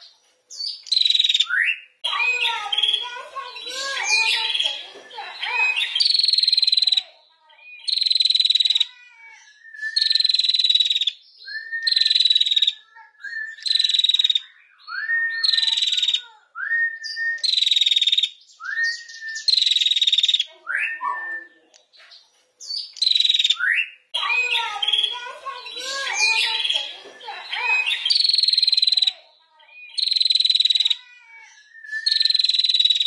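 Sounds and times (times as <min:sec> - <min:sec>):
bird calling with rattling trill: 0:00.0 - 0:16.3, 0:17.0 - 0:33.0.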